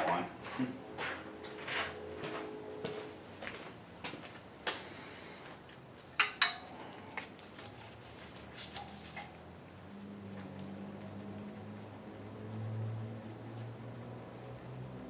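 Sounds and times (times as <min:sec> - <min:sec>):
wrench clinking on bolts: 0:06.2 - 0:06.7.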